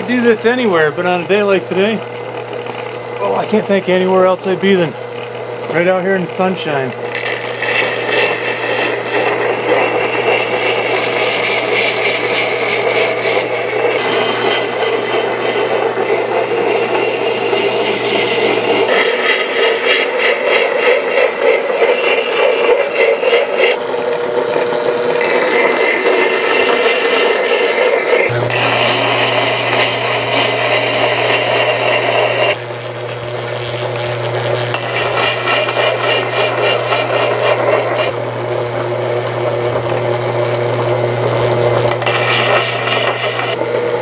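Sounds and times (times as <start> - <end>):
grinder motor hum: 0.0 - 44.0
axe scraping on grinding wheel: 5.7 - 23.8, 25.0 - 32.6, 34.4 - 38.2, 41.8 - 43.6.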